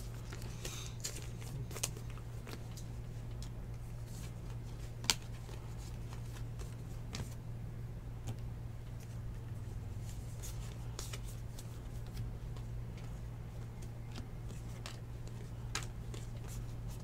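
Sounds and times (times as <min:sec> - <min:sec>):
steady low hum: 0:00.0 - 0:17.0
trading cards clicking and snapping: 0:00.2 - 0:03.6, 0:05.0 - 0:07.4, 0:13.8 - 0:17.0.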